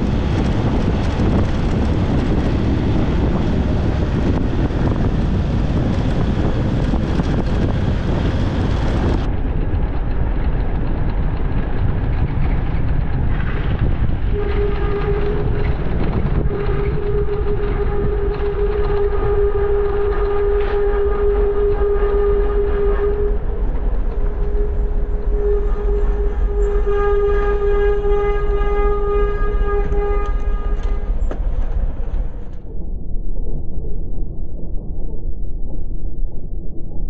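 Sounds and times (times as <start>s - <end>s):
motorcycle engine: 0.0s - 9.3s
steady droning tone: 0.0s - 9.4s, 14.3s - 37.0s
wind rushing on microphone: 0.0s - 37.0s.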